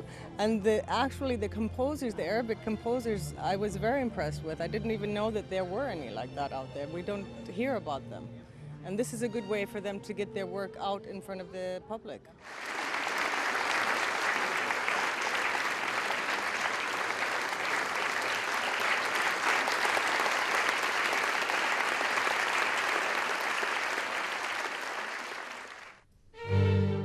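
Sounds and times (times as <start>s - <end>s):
audience applause: 12.4s - 26.0s.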